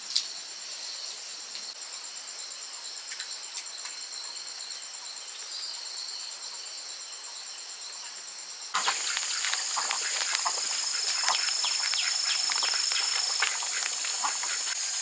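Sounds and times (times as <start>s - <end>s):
insects droning: 0.0s - 15.0s
quick bird chirps: 8.8s - 15.0s.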